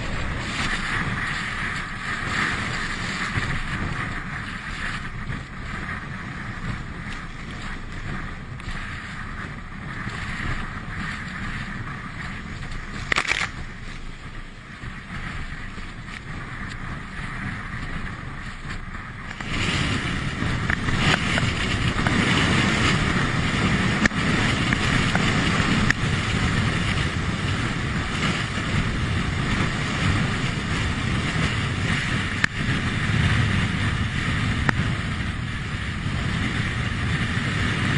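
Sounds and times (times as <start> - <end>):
surf breaking against rocks: 0.0 - 5.9
wind buffeting microphone: 0.0 - 37.9.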